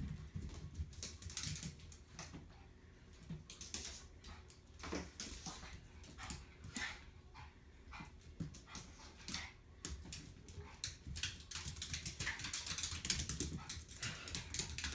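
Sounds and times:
dog claws clicking on vinyl floor: 0.0s - 2.4s, 8.4s - 14.9s.

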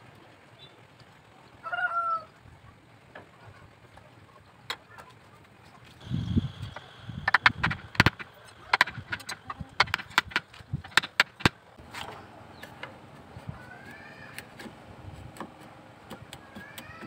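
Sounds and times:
chisel paring wood: 7.3s - 11.6s.

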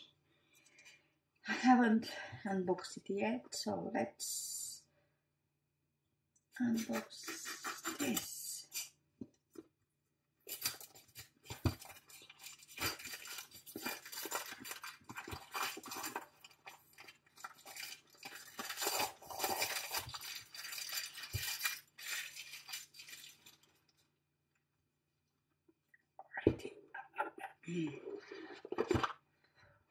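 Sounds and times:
cellophane crinkling: 10.4s - 24.0s.

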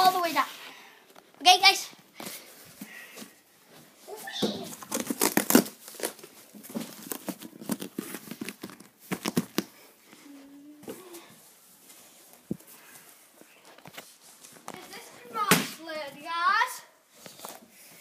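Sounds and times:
cardboard crinkling and rustling: 3.9s - 9.8s.

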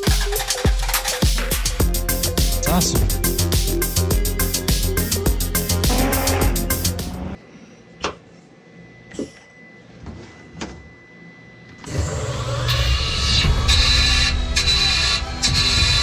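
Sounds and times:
music: 0.0s - 7.4s, 12.0s - 16.0s.

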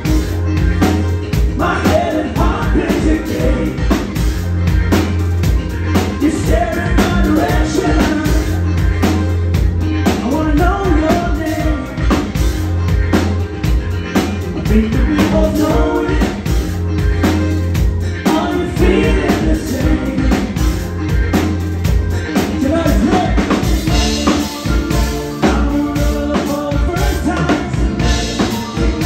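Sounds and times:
bass guitar: 0.0s - 29.0s
live rock band playing: 0.0s - 29.0s
steady drum beat: 0.0s - 29.0s
person singing: 0.9s - 21.6s, 22.2s - 29.0s.

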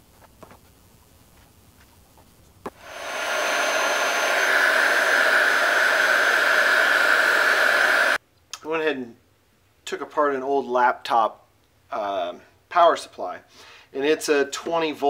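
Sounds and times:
heat gun fan blowing: 2.7s - 8.2s.

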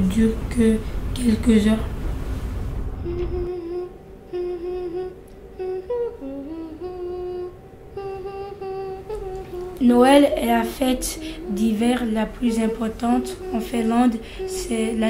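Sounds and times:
person humming a melody: 3.0s - 15.0s.

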